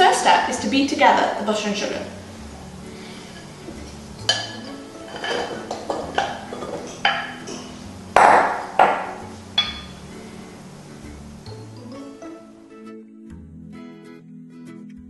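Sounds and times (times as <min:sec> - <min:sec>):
glass bowls set down on stone: 0:03.8 - 0:10.0
wooden spoon knocking glass bowl: 0:04.2 - 0:07.6, 0:08.2 - 0:10.0.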